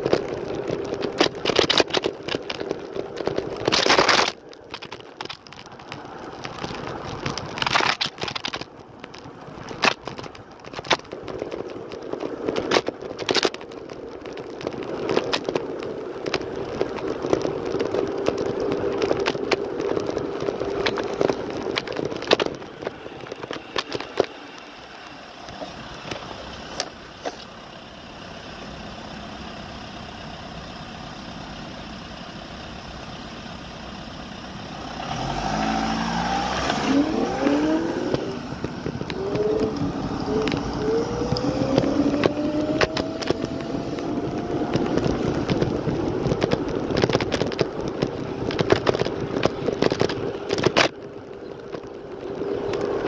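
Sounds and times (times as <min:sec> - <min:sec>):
scooter rattles and knocks: 0:00.0 - 0:53.0
motor vehicle accelerating: 0:34.4 - 0:53.0
electric scooter motor whine: 0:37.1 - 0:46.8.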